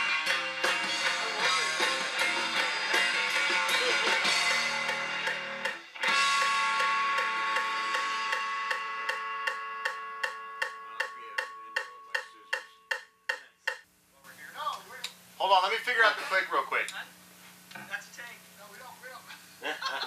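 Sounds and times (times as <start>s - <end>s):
rock band playing: 0.0s - 12.2s
held guitar chord ringing: 0.0s - 13.5s
metronome click track ticking: 6.4s - 13.8s.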